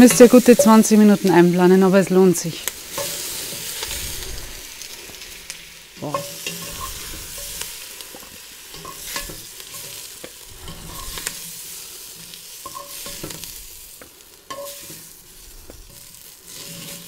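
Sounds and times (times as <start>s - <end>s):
onions sizzling in butter: 0.0s - 17.0s
turner scraping a pot: 6.0s - 11.5s, 14.5s - 17.0s.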